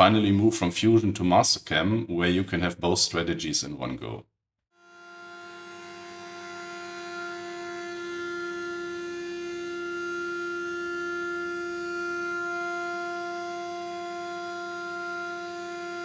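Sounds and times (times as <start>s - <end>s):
router spindle whining: 4.9s - 16.0s.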